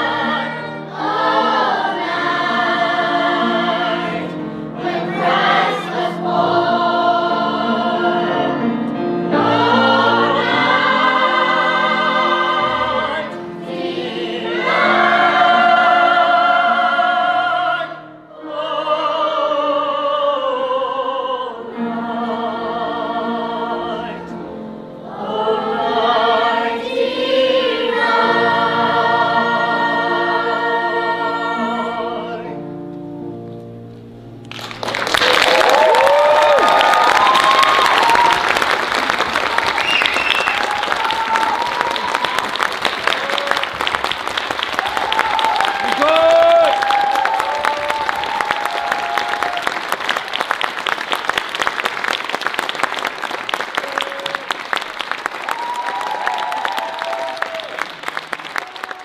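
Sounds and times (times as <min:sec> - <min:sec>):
youth choir singing: 0:00.0 - 0:24.4, 0:25.0 - 0:32.6
audience applauding: 0:34.4 - 0:59.0.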